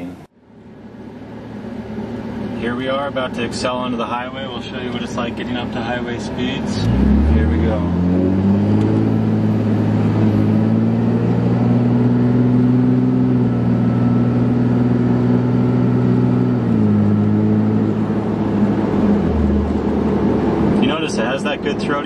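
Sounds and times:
pickup truck engine accelerating: 0:04.6 - 0:22.0.

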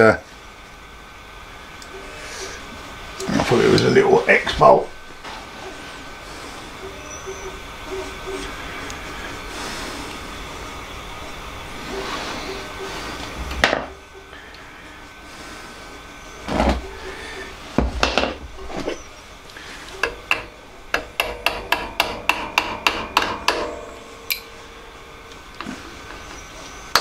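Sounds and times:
hammer tapping metal punch: 0:20.0 - 0:24.5.

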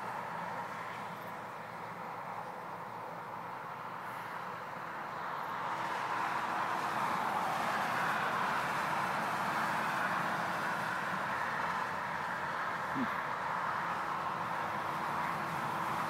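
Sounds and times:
road traffic rushing past: 0:00.0 - 0:16.0.

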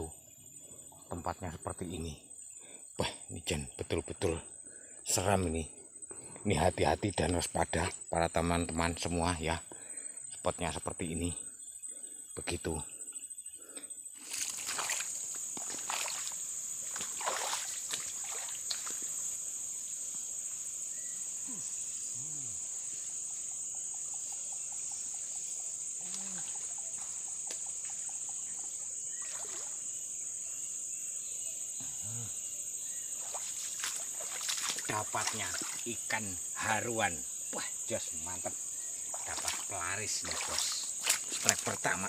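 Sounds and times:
high insect drone: 0:00.0 - 0:42.0
water splashing and sloshing: 0:14.2 - 0:19.1, 0:29.1 - 0:29.9, 0:33.2 - 0:36.0, 0:39.0 - 0:41.9.

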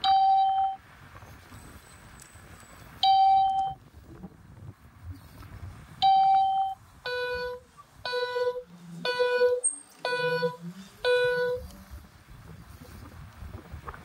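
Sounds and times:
long loud electronic beeps: 0:00.0 - 0:00.8, 0:03.0 - 0:03.8, 0:06.0 - 0:11.6
lower repeating beep: 0:06.0 - 0:11.6.

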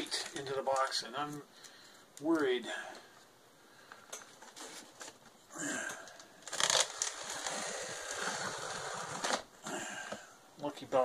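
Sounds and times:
hands scraping cardboard: 0:06.7 - 0:09.4.

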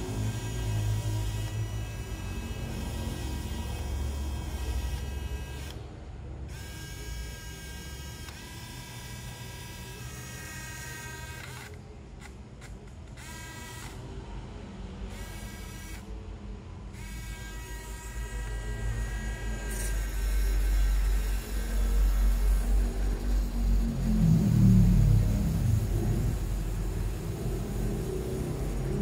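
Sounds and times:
small wheel motors whining: 0:00.0 - 0:05.8.

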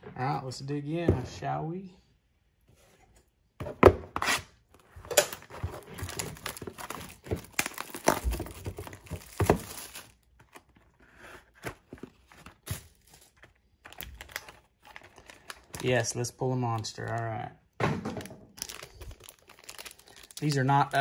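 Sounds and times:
plastic shrink wrap crackling: 0:05.4 - 0:10.8, 0:11.8 - 0:17.4, 0:18.2 - 0:21.0.

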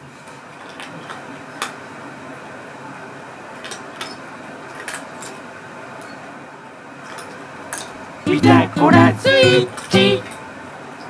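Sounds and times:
cats eating dry kibble: 0:00.6 - 0:01.8, 0:03.6 - 0:05.4.

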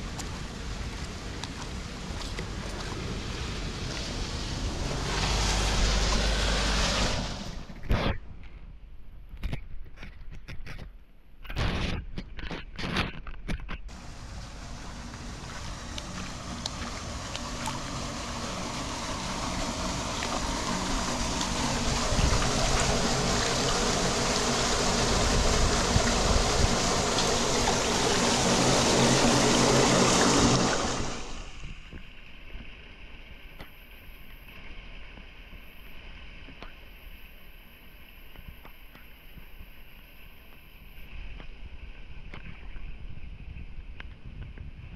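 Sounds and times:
water rushing into storm drain: 0:00.0 - 0:07.8, 0:13.9 - 0:36.7.

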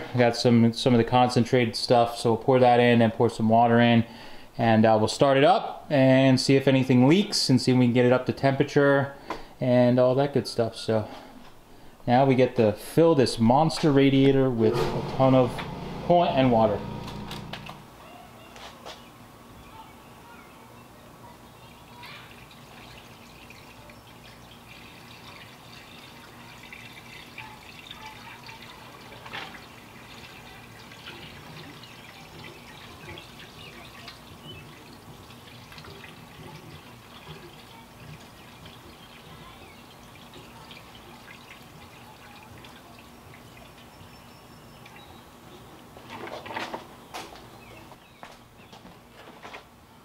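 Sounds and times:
liquid trickling: 0:21.9 - 0:45.1.

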